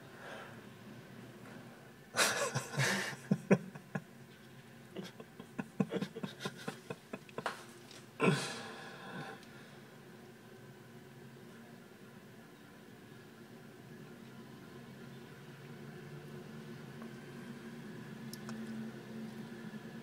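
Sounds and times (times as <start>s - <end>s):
stifled snorting laughter: 2.2s - 4.1s, 4.9s - 7.6s.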